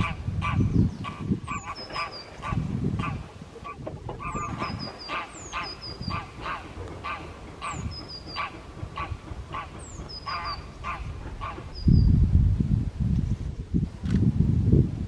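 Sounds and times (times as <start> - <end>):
goose honking: 0.0 - 11.8
songbird whistling: 4.2 - 6.2.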